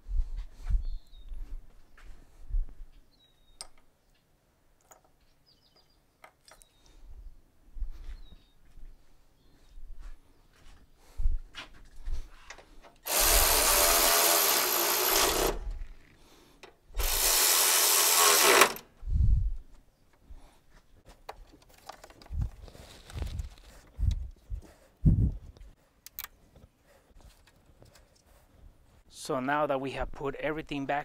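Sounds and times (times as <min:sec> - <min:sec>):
cordless electric ratchet running: 0:13.0 - 0:15.9, 0:17.0 - 0:18.9.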